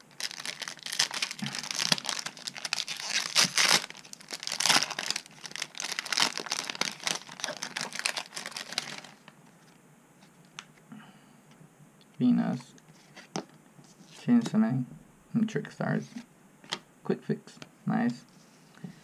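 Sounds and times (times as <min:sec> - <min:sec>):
foil wrapper crinkling and tearing: 0:00.0 - 0:09.3.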